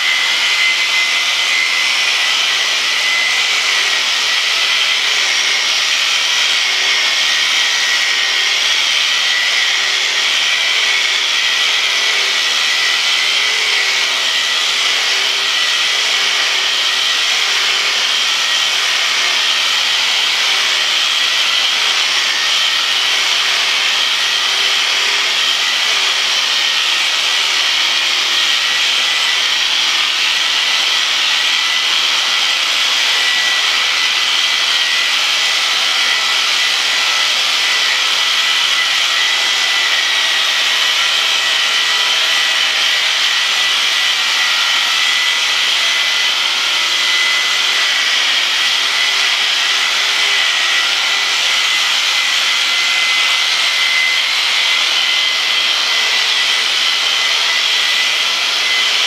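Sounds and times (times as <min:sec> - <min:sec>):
electric shears buzzing: 0:00.0 - 0:59.0.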